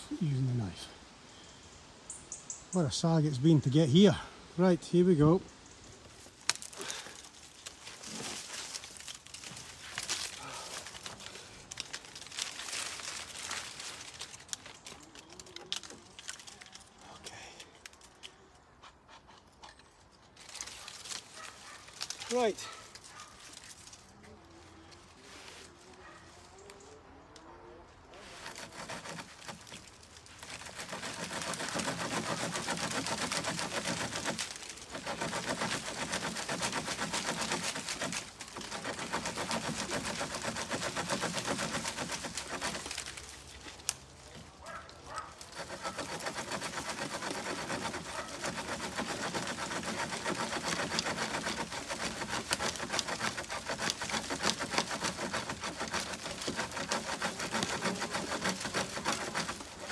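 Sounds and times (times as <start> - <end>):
knife sawing through branch: 6.4 - 17.5, 20.4 - 24.2, 28.1 - 59.9.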